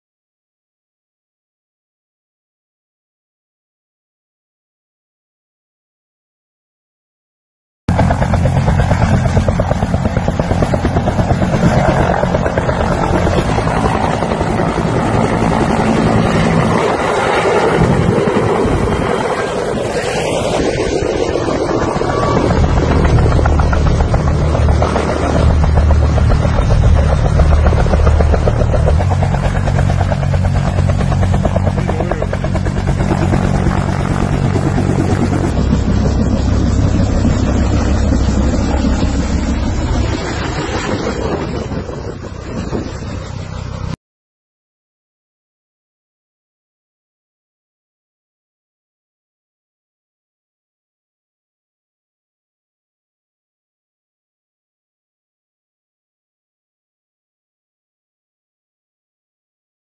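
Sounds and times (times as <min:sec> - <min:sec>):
helicopter engine noise: 0:07.9 - 0:44.0
helicopter rotor beating: 0:07.9 - 0:44.0.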